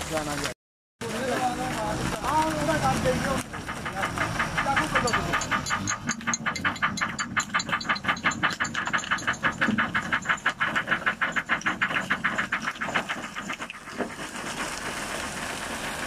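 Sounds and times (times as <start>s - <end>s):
engine chugging: 1.0s - 16.0s
water and fish pouring: 12.0s - 16.0s.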